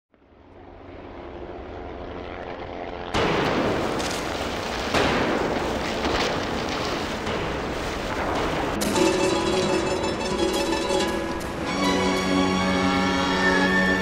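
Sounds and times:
propeller aircraft engine drone: 0.1s - 14.0s
rumble of blasts: 0.1s - 14.0s
bomb explosions: 3.1s - 11.7s.

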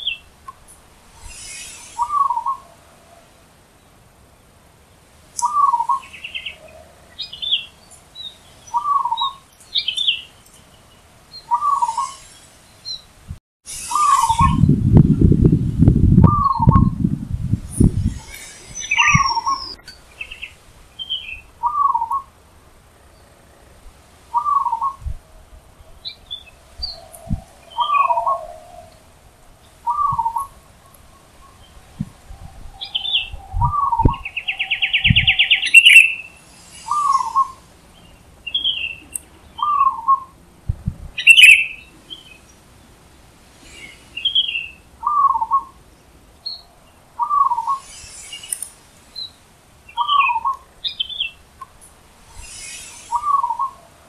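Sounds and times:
birds chirping: 0.0s - 54.0s
dove cooing: 1.6s - 3.4s, 21.6s - 22.3s, 24.3s - 25.0s, 26.8s - 29.1s, 29.8s - 31.3s
loud rapid bird trill: 5.4s - 13.1s, 13.7s - 14.8s, 17.9s - 22.3s, 26.0s - 29.0s, 32.8s - 40.4s, 41.2s - 42.5s, 52.3s - 54.0s.

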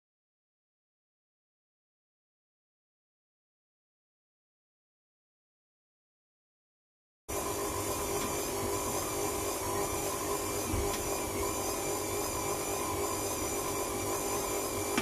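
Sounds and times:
stand mixer motor whining: 7.3s - 15.0s.

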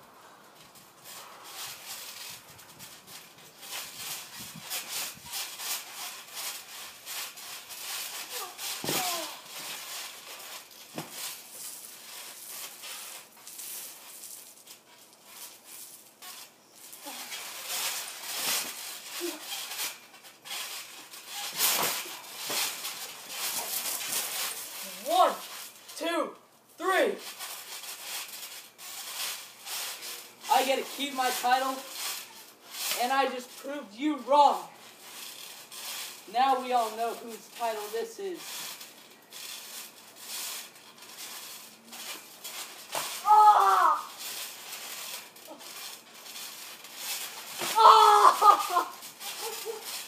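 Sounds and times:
bodies thumping on trampoline mat: 2.9s - 10.2s, 10.9s - 11.2s, 20.7s - 24.4s.

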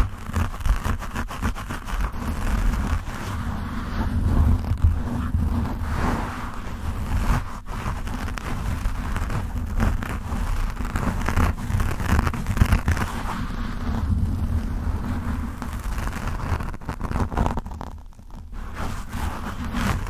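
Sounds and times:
fingers scratching microphone windscreen: 0.0s - 20.0s.

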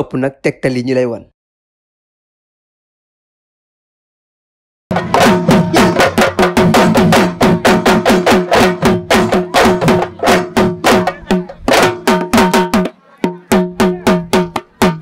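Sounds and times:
drums played fast: 4.9s - 15.0s.

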